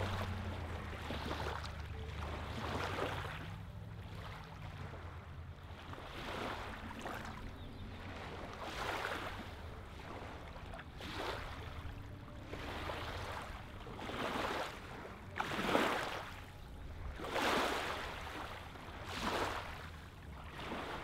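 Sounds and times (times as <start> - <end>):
faint low rumble: 0.0 - 21.0
ripples lapping on pebbly shore: 0.0 - 21.0.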